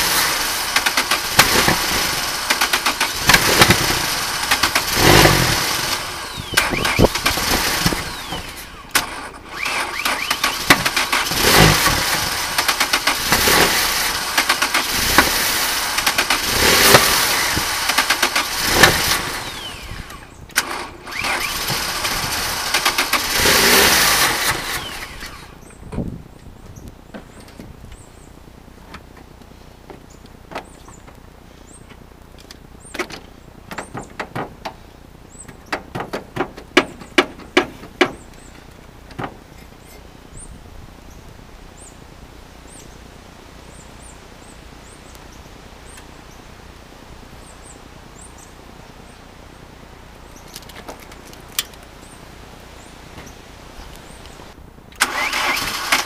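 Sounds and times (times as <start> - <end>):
faint birds chirping: 19.4 - 20.6, 24.8 - 55.0
tools tapping in engine bay: 32.9 - 34.8, 35.4 - 39.7.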